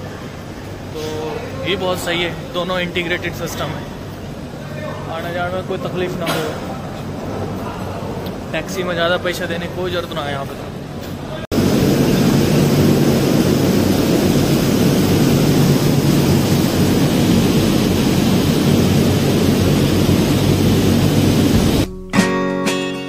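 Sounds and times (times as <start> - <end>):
loud steady rushing noise: 11.5 - 21.9
low hum: 11.5 - 22.2
acoustic guitar music: 21.5 - 23.0.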